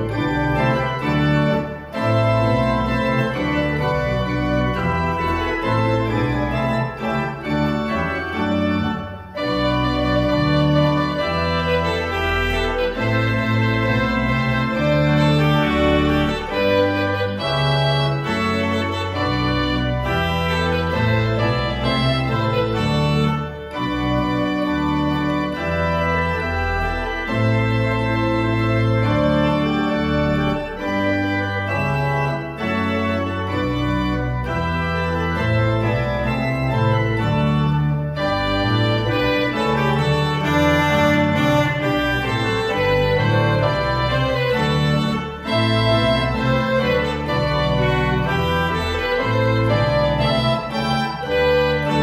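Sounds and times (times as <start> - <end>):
pipe organ playing march tune: 0.0 - 52.0.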